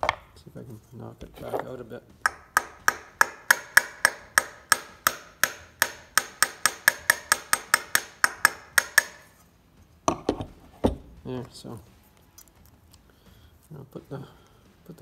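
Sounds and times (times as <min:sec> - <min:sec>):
hammer tapping steel: 0:02.1 - 0:09.5.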